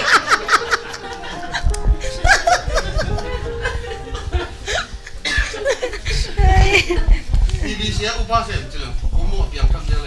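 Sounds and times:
men laughing: 0:00.0 - 0:07.3.

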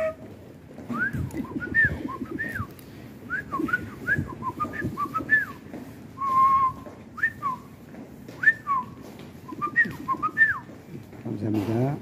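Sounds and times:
person whistling a tune: 0:00.9 - 0:02.7, 0:03.3 - 0:05.6, 0:06.2 - 0:07.7, 0:08.4 - 0:09.0, 0:09.6 - 0:10.6.

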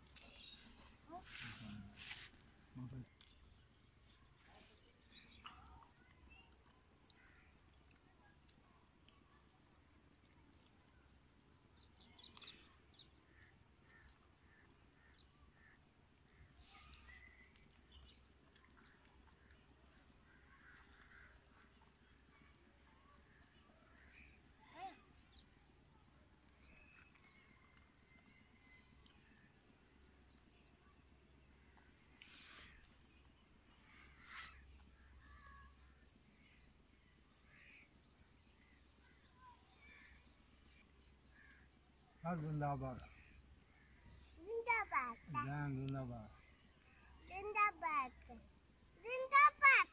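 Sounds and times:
soft bird chirps: 0:00.0 - 0:49.9
faint crow calls: 0:20.2 - 0:21.8, 0:41.3 - 0:41.7.

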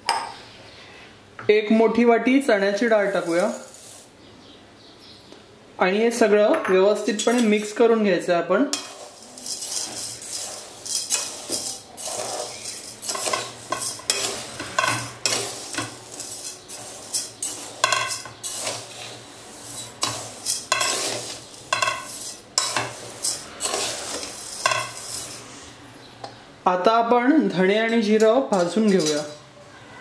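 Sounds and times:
dry grains rattling: 0:03.0 - 0:04.0, 0:08.8 - 0:25.4
spoon scraping metal bowl: 0:03.0 - 0:04.1, 0:07.1 - 0:07.8, 0:08.7 - 0:25.7, 0:28.6 - 0:29.4.

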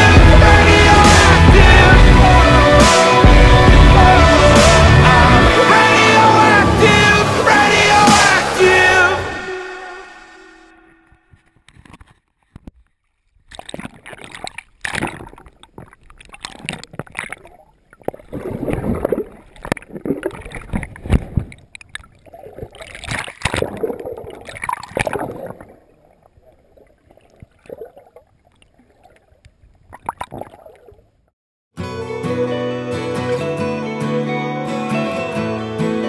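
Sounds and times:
underwater water sloshing and gurgling: 0:11.4 - 0:31.3.

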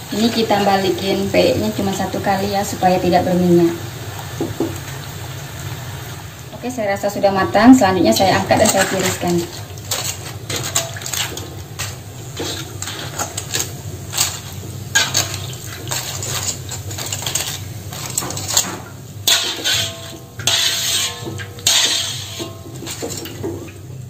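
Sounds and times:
metal tongs clinking on wok: 0:08.2 - 0:23.8
scraping rustles: 0:08.3 - 0:23.7.

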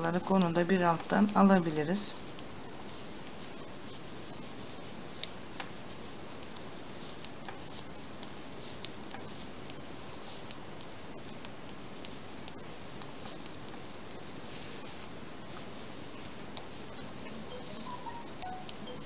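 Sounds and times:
steady hiss: 0:00.0 - 0:19.0
knitting needles clicking: 0:00.1 - 0:01.7.

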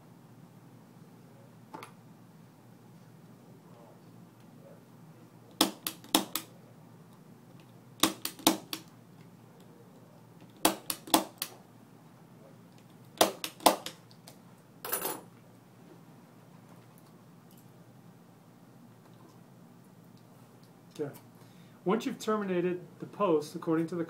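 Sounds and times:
punch-down tool snapping: 0:05.6 - 0:06.5, 0:08.0 - 0:08.9, 0:10.6 - 0:11.6, 0:13.2 - 0:14.0.

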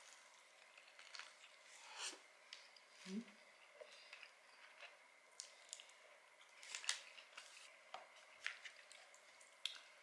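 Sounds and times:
crisp chewing: 0:00.0 - 0:01.6, 0:03.6 - 0:10.0
paper wrapper crinkling: 0:06.5 - 0:07.7.

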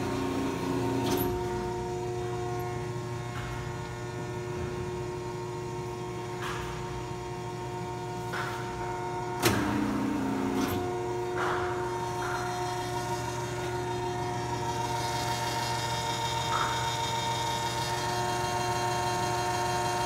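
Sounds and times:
electric motor and gearing humming: 0:00.0 - 0:20.0
sharp mechanical clunk: 0:09.4 - 0:09.8.

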